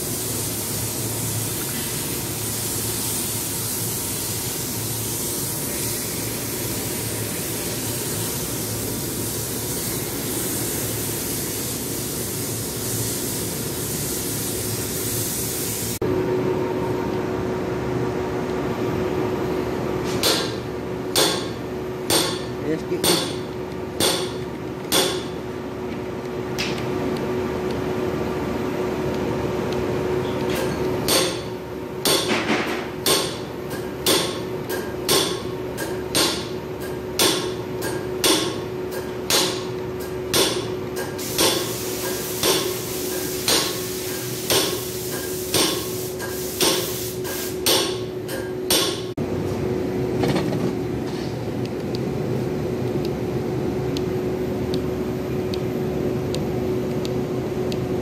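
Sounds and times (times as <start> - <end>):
hiss: 0.0 - 16.0, 40.4 - 48.0
steady hum: 0.0 - 58.0.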